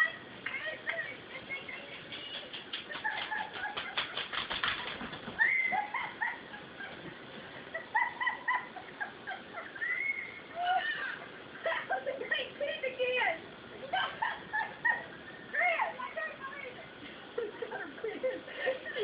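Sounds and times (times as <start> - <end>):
girls squealing and shrieking: 5.4 - 6.2, 9.7 - 11.8.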